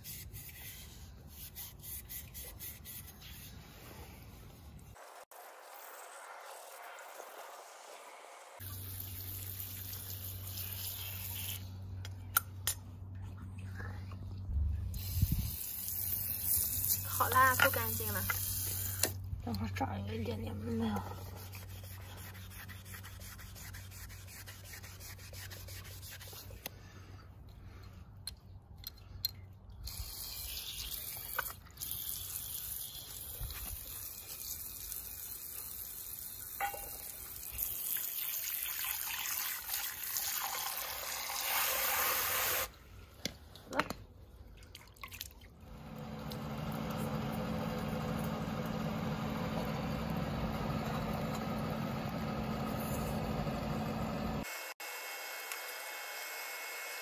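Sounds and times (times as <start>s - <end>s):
scouring pad rubbing on copper: 21.1s - 26.5s
steady mechanical hum: 45.6s - 57.0s.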